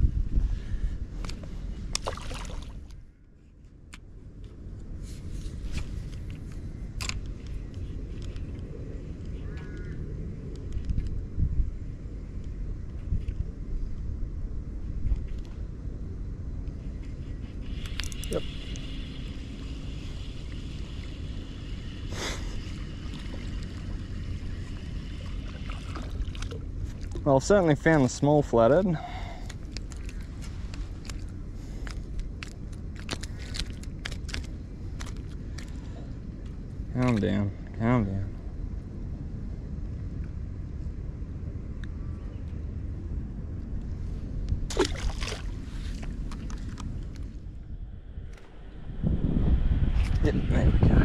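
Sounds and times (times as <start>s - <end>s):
wind on microphone: 0.0s - 3.1s, 4.7s - 32.5s, 38.2s - 51.0s
steady low rumble: 0.0s - 51.0s
water lapping against boat: 2.0s - 2.9s, 25.1s - 27.2s, 44.7s - 46.8s
fishing reel clicks and rustles: 17.0s - 21.9s, 26.1s - 35.9s.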